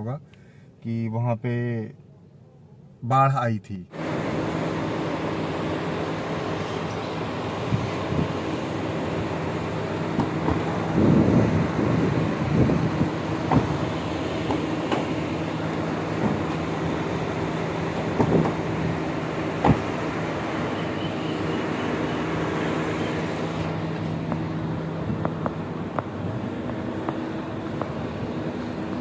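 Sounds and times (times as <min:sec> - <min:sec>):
mechanical hum: 0:03.9 - 0:29.0
car doors and boot knocks: 0:13.4 - 0:13.8, 0:16.2 - 0:16.6, 0:18.0 - 0:18.6, 0:19.6 - 0:19.9.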